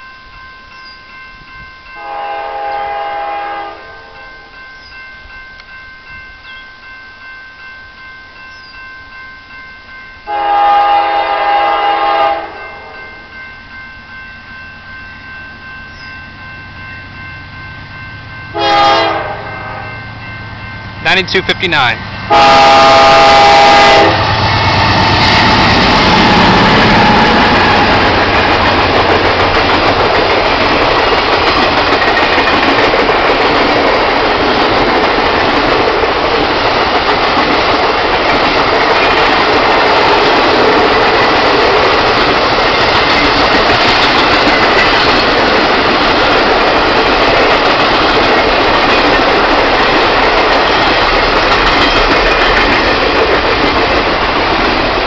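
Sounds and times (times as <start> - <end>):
diesel locomotive passing: 0.0 - 55.0
train wheels rolling on rails: 20.1 - 55.0.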